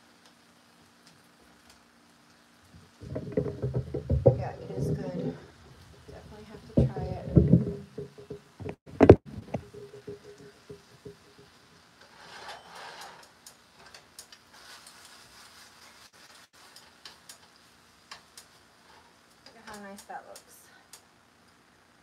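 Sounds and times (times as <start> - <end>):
fat spitting in frying pan: 2.8 - 19.6
tongs clicking against pan: 13.4 - 14.4, 16.7 - 18.6.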